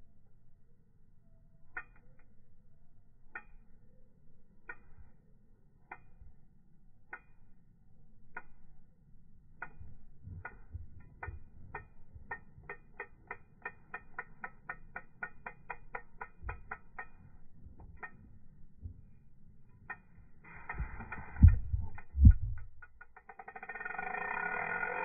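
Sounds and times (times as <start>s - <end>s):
fishing reel clicking: 1.7s - 2.4s, 3.3s - 3.7s, 9.6s - 18.4s, 19.7s - 25.0s.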